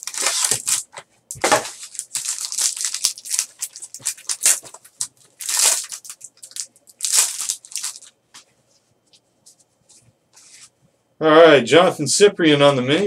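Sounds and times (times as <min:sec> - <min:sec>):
plastic wrapper crinkling and tearing: 0:00.0 - 0:08.2.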